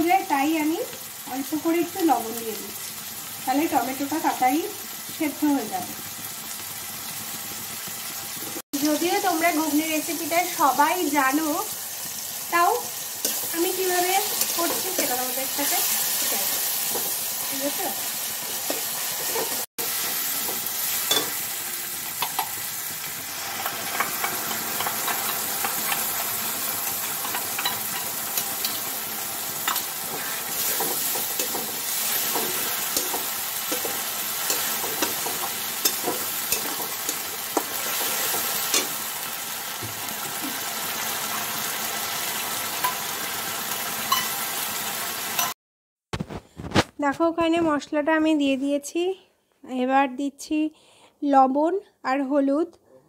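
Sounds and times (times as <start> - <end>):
paste sizzling in oil: 0.1 - 45.6
metal spatula scraping pan: 18.5 - 21.4, 29.6 - 39.0.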